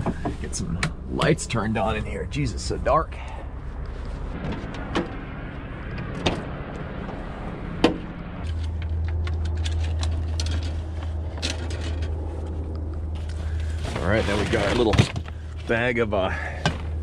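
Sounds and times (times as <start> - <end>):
steady low hum: 0.0 - 17.0
gear clicking and clattering: 8.4 - 15.4.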